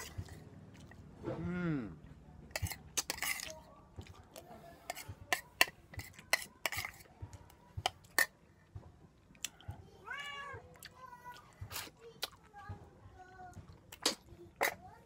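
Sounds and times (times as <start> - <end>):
person chewing and smacking: 0.0 - 1.0, 2.6 - 5.0, 9.2 - 9.6, 10.7 - 12.5, 13.6 - 14.8
cat meowing: 10.1 - 10.6.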